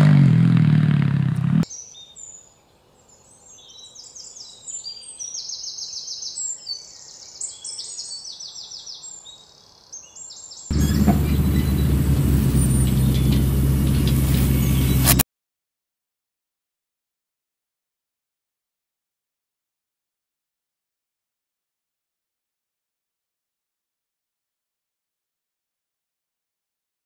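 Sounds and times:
loud low buzzy drone: 0:00.0 - 0:01.6, 0:10.7 - 0:15.2
motorcycle engine: 0:00.0 - 0:01.6, 0:10.7 - 0:15.2
songbirds chirping and trilling: 0:01.6 - 0:15.2.

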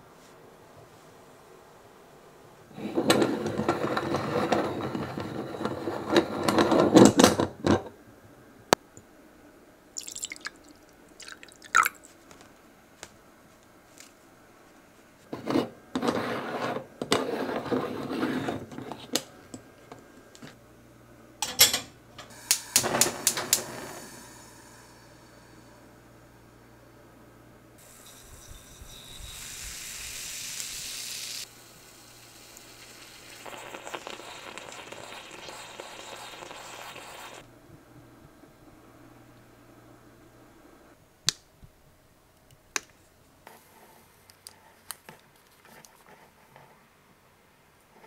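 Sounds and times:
ground coffee pouring: 0:10.0 - 0:12.1, 0:28.0 - 0:37.4
mouthwash sloshing: 0:10.0 - 0:12.2
gas stove burner clicking: 0:22.4 - 0:23.9.

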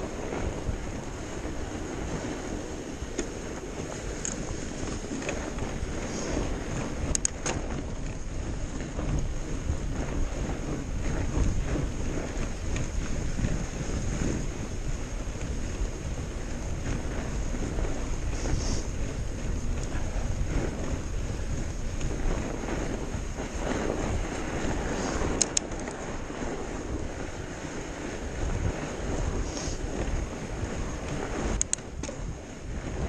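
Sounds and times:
bike tyres rolling over snow: 0:00.0 - 0:33.0
wind on microphone: 0:00.0 - 0:33.0
sharp clicks: 0:07.1 - 0:07.6, 0:25.3 - 0:26.0, 0:31.6 - 0:32.2.

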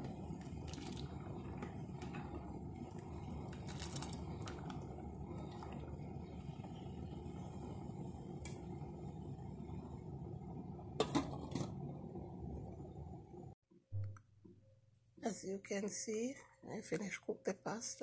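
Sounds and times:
water boiling and bubbling: 0:00.0 - 0:13.6.

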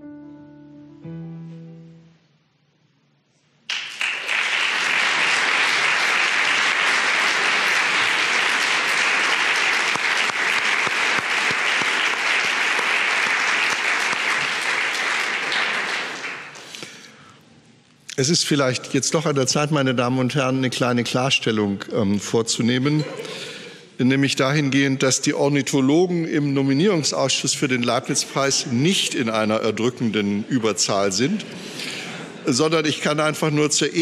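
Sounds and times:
soft music: 0:00.0 - 0:03.6
audience applause: 0:03.7 - 0:16.7.

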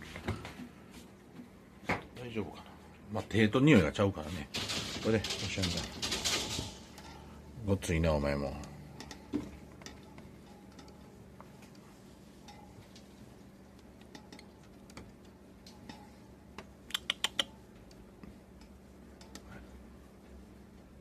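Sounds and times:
low steady hum: 0:00.0 - 0:21.0
sharp clicks: 0:16.9 - 0:17.5.

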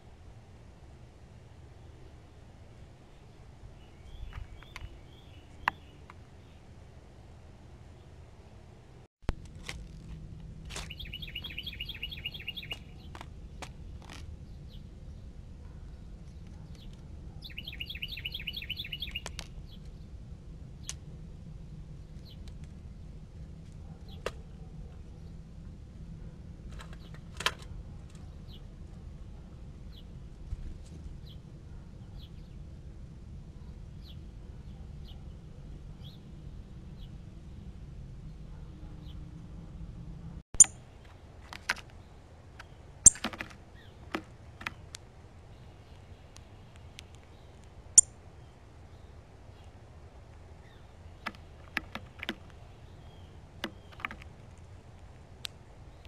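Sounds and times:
low background rumble: 0:00.0 - 0:43.0
songbird singing high notes: 0:10.9 - 0:13.1, 0:17.4 - 0:19.4.

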